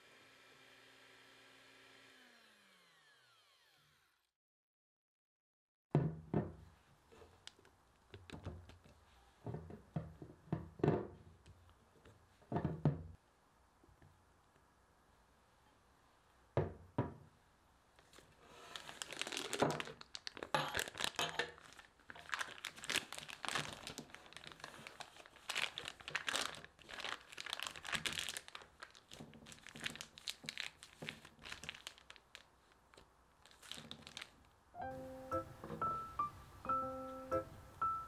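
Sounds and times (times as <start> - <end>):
plastic piping bag crinkling: 18.1 - 34.6.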